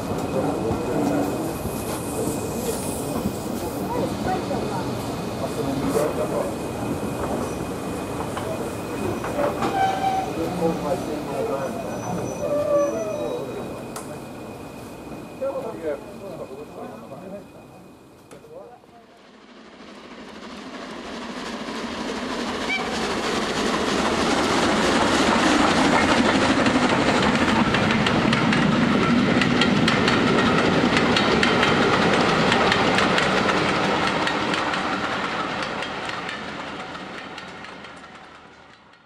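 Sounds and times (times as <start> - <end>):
train wheels clicking over rails: 20.6 - 39.0.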